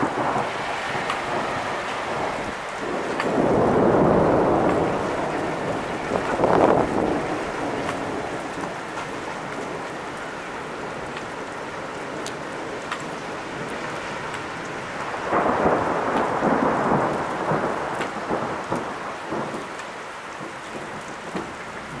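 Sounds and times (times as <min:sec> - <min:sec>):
steady rain falling: 0:00.0 - 0:22.0
thunder rumbling: 0:00.0 - 0:22.0.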